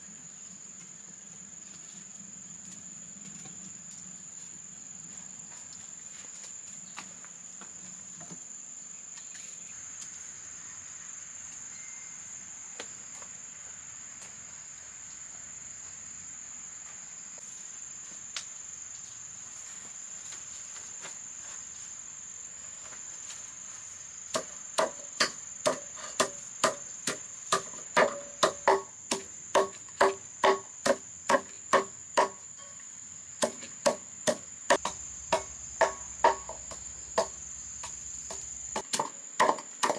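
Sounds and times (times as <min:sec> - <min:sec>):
insects droning: 0:00.0 - 0:39.9
sharp ringing knocks: 0:24.8 - 0:32.8, 0:33.4 - 0:39.9.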